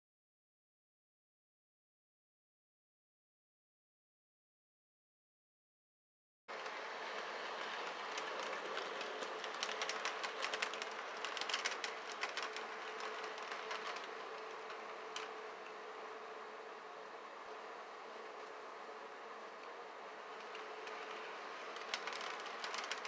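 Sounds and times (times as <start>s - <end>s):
model train motor hum: 6.5s - 23.0s
metal wheels clicking on rail joints: 6.6s - 15.3s, 20.4s - 23.0s.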